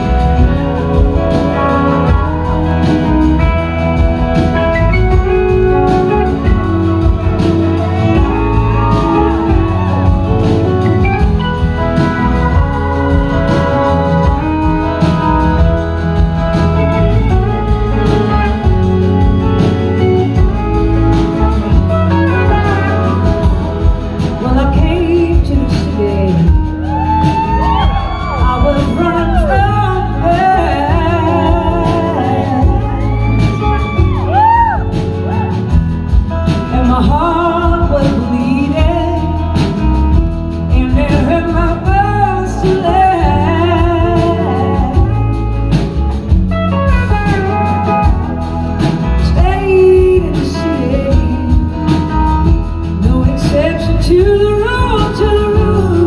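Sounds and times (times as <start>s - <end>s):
woman singing: 0.0s - 35.4s, 36.5s - 45.9s, 48.8s - 56.0s
blues-rock band playing: 0.0s - 56.0s.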